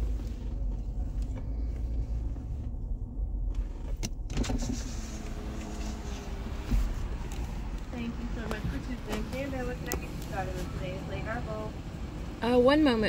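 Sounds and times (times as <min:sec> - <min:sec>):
low rumble inside car: 0:00.0 - 0:13.0
power window motor whining: 0:03.5 - 0:07.9.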